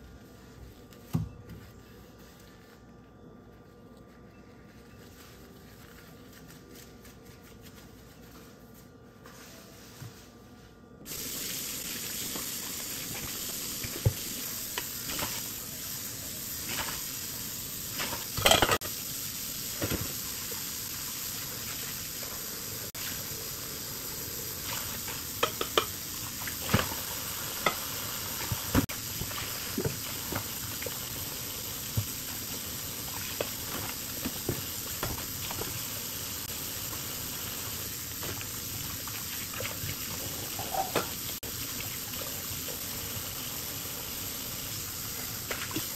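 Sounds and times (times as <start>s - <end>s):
pots and lid clattering: 18.0s - 18.8s, 40.5s - 41.2s.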